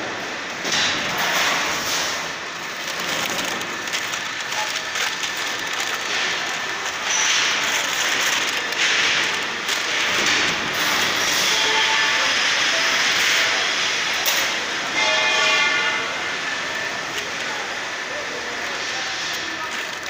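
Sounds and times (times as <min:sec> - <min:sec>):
newspaper rustling and crinkling: 0:02.6 - 0:10.9, 0:19.2 - 0:20.0.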